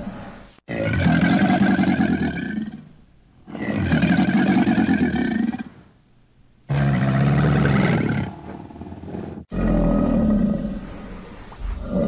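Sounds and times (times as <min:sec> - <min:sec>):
crocodile growling: 0:06.7 - 0:12.0.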